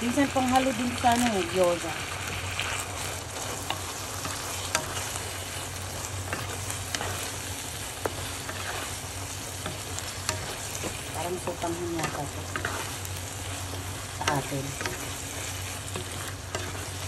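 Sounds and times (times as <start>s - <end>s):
noodles sizzling in pan: 0.0s - 17.0s.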